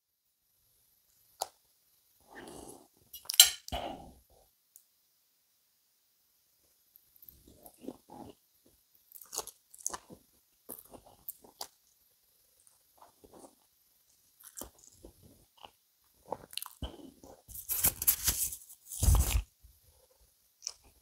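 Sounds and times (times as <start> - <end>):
person chewing: 7.0 - 8.4, 9.0 - 12.0, 12.6 - 18.2, 20.6 - 21.0.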